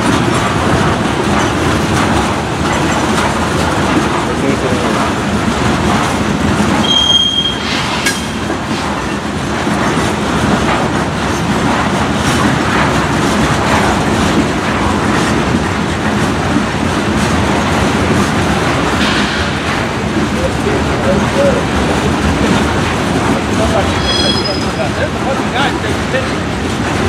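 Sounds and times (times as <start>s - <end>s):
train wheels rumbling on rail: 0.0s - 27.0s
high-pitched wheel squeal: 6.8s - 7.8s, 23.9s - 24.9s.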